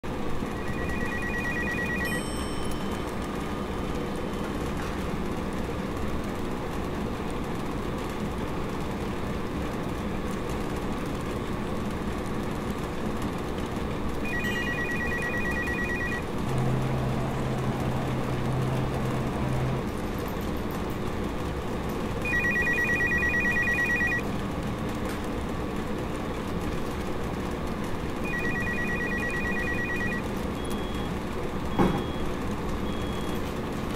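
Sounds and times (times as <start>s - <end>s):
steady background hum: 0.1s - 33.9s
electronic telephone ringing: 0.5s - 3.3s, 14.2s - 16.3s, 22.2s - 24.3s, 28.2s - 31.2s.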